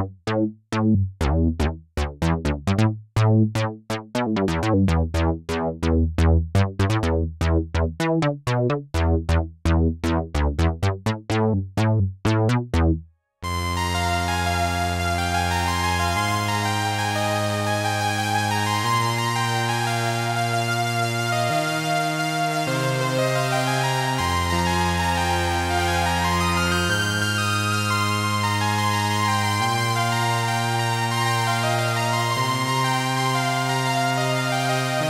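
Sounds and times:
deep bass notes: 0.0s - 35.0s
plucky synth notes: 0.2s - 35.0s
sustained synth chord: 13.4s - 35.0s.

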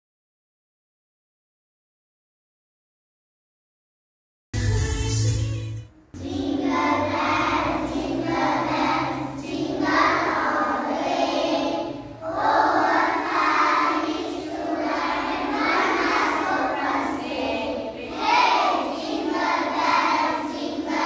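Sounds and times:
children's choir singing: 6.1s - 21.0s.

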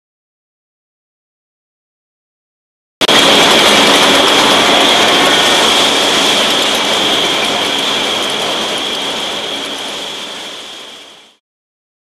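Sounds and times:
high steady whine: 3.0s - 11.4s.

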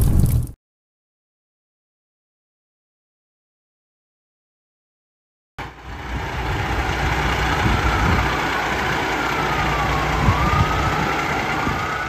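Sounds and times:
diesel engine idling: 5.6s - 12.0s
siren sliding in pitch: 7.0s - 12.0s.

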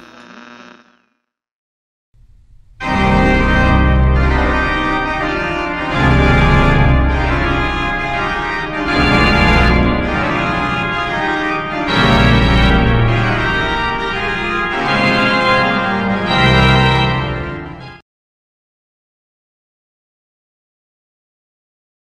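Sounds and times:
organ playing sustained chords: 2.5s - 17.9s.

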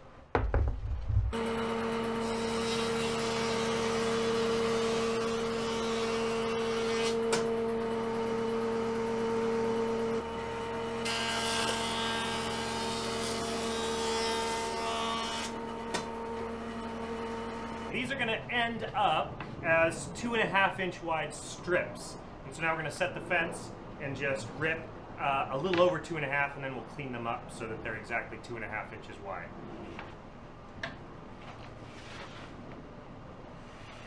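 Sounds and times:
jointer motor hum: 1.3s - 12.6s
jointer cutting wood: 1.4s - 16.9s.

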